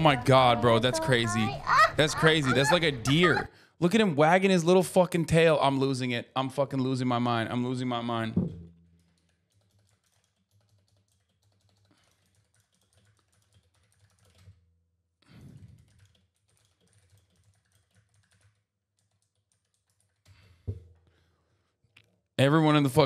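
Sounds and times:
typing on computer keyboard: 9.0s - 14.6s, 15.4s - 20.6s.

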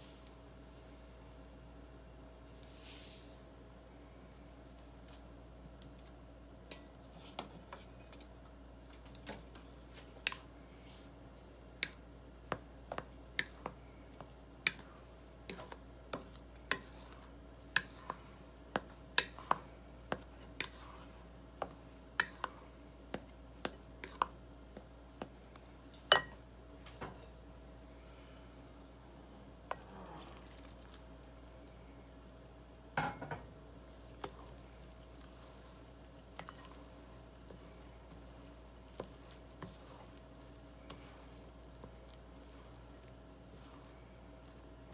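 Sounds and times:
faint steady hum: 0.0s - 44.9s
spatula stirring flour: 2.4s - 3.4s, 5.9s - 27.5s, 28.1s - 44.9s
spatula tapping glass bowl: 22.2s - 22.5s.

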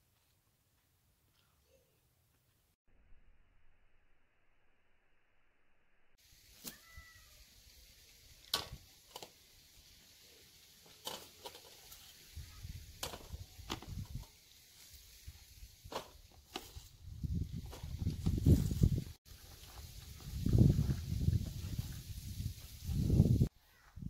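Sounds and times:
cabbage rustling into a colander: 10.8s - 16.9s.

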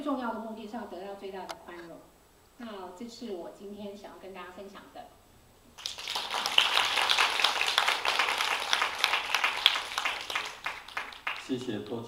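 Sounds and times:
people clapping: 5.8s - 12.0s.

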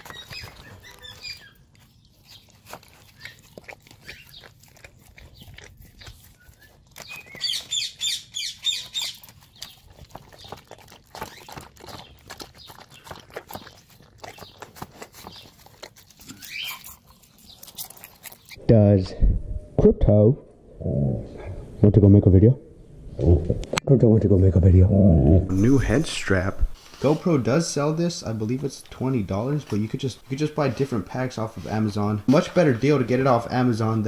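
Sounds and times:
bird chirping rapidly: 0.0s - 4.6s, 5.4s - 18.6s
dog crunching eggshells: 0.0s - 18.6s.

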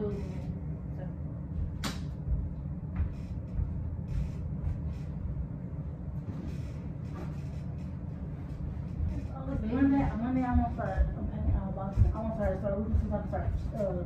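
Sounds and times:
steady low rumble: 0.0s - 14.0s
sharp click: 1.8s - 2.2s.

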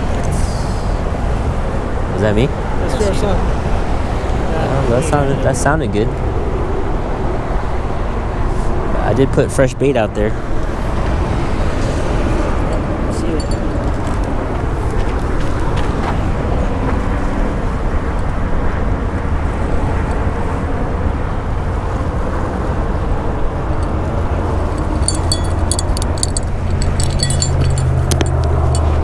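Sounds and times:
sharp clicks and rattles: 24.7s - 29.0s.

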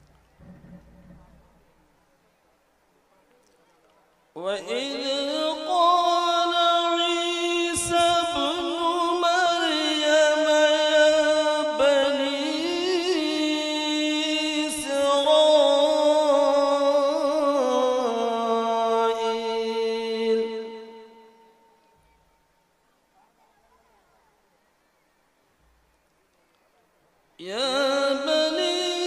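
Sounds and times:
man reciting melodic chant: 4.4s - 21.8s, 27.4s - 29.0s.

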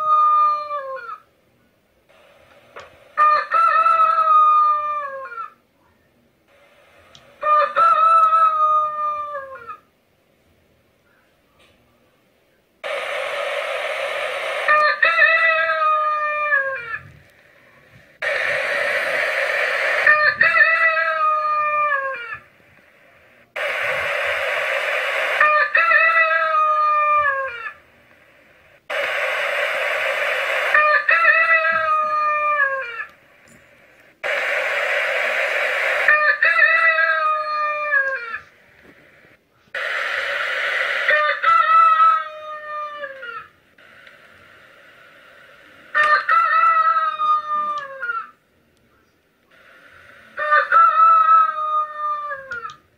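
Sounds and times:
rooster crowing: 0.0s - 1.2s, 3.2s - 5.6s, 7.4s - 9.8s, 13.8s - 17.1s, 18.2s - 22.4s, 23.6s - 27.8s, 28.9s - 33.2s, 35.1s - 38.5s, 40.7s - 43.5s, 45.9s - 48.4s, 50.2s - 52.8s.

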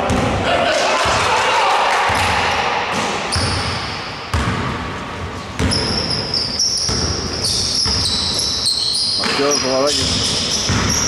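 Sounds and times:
shoe squeaks: 3.3s - 3.7s, 5.6s - 11.0s
basketball bouncing on wood floor: 5.5s - 6.2s, 6.8s - 8.2s, 10.0s - 11.0s.

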